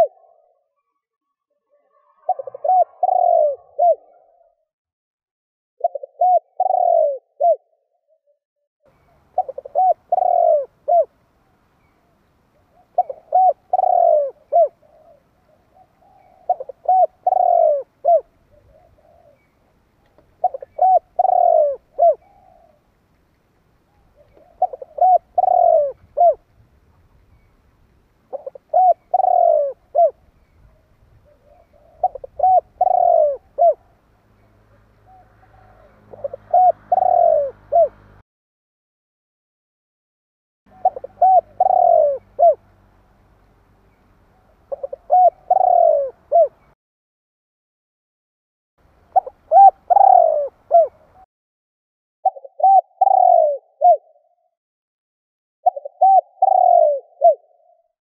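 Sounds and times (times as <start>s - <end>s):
dove cooing: 0.0s - 0.7s, 1.7s - 4.6s, 5.8s - 7.9s, 9.0s - 11.2s, 12.6s - 19.5s, 20.3s - 22.9s, 23.9s - 26.4s, 28.3s - 34.0s, 34.7s - 38.2s, 40.7s - 42.7s, 44.4s - 46.7s, 49.1s - 51.3s, 52.2s - 54.4s, 55.7s - 57.9s.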